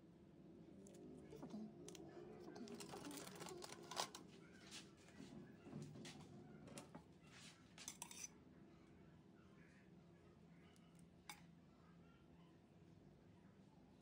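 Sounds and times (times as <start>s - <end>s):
metal spatula scraping steel bowl: 7.9s - 8.3s.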